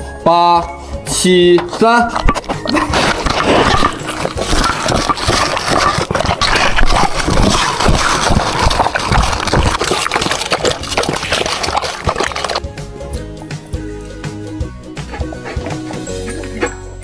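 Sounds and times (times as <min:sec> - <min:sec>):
dog chewing and slurping: 0:01.6 - 0:12.6, 0:15.0 - 0:16.8.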